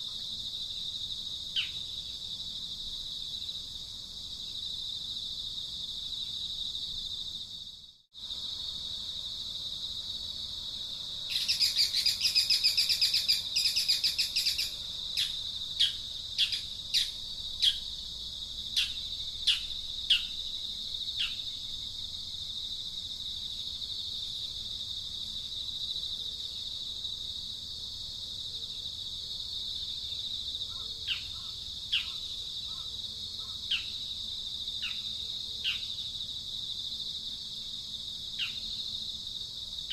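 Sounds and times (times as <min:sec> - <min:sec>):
high-pitched insect drone: 0:11.3 - 0:22.0.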